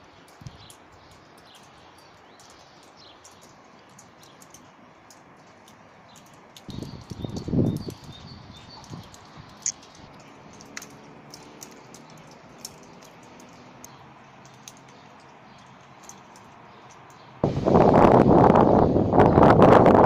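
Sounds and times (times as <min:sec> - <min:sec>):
light clicks: 0:00.2 - 0:17.3
low rumbling gusts: 0:06.6 - 0:10.6, 0:17.4 - 0:20.0.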